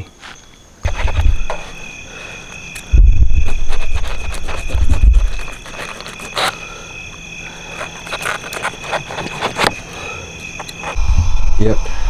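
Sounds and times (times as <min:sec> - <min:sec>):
insect chorus trilling: 0:00.0 - 0:12.0
low rumble on microphone: 0:00.9 - 0:01.6, 0:02.9 - 0:05.5, 0:11.0 - 0:12.0.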